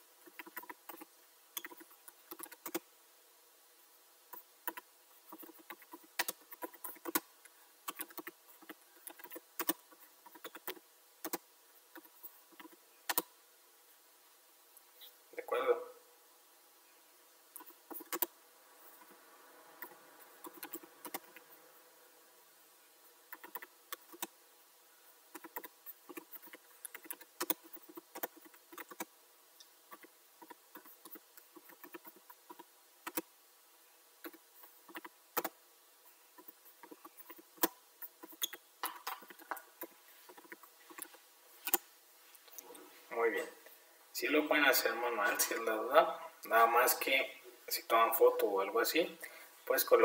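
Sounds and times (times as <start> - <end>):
computer keyboard typing: 0.2 - 2.8, 4.6 - 7.2, 7.9 - 11.4, 17.6 - 18.3, 19.8 - 21.4, 23.3 - 24.3, 25.3 - 29.1, 29.9 - 33.2, 34.2 - 35.5.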